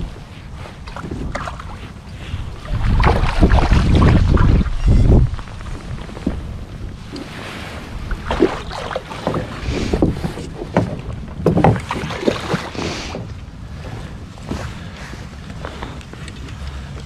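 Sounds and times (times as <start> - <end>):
sharp knocks on kayak: 8.2 - 12.7.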